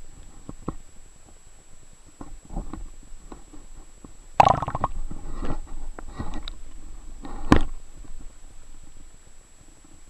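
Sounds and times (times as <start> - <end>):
splash: 4.4 - 4.9
underwater gurgling: 4.4 - 5.0.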